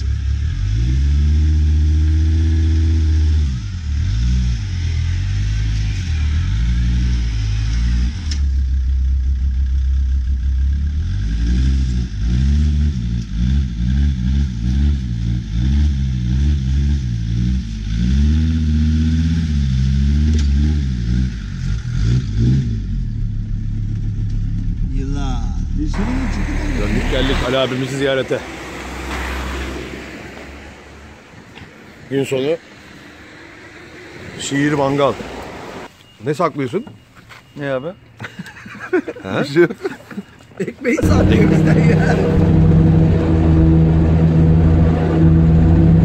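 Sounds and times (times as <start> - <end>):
engine revving: 0.0 - 31.6, 41.0 - 46.0.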